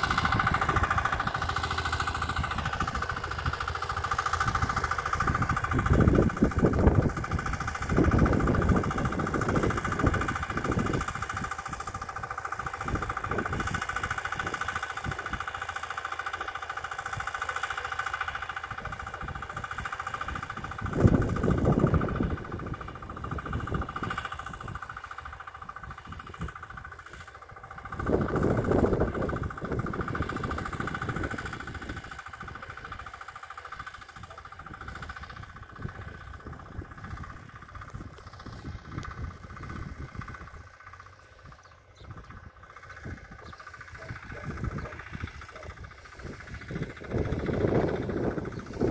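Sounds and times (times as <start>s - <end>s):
distant tractor engine running: 0.0s - 48.9s
bursts of low rumble: 18.3s - 48.9s.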